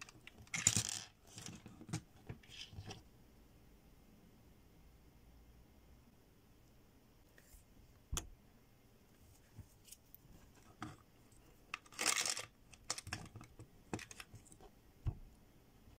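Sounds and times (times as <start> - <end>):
candies rattling in machine: 0.4 - 1.2, 11.8 - 13.4.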